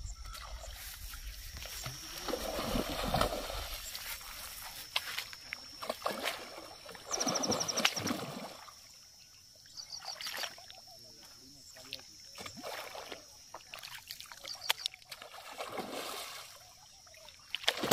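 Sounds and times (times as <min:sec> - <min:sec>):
fish splashing in water: 0:01.9 - 0:04.2, 0:05.8 - 0:08.7, 0:12.3 - 0:16.7, 0:17.4 - 0:17.9.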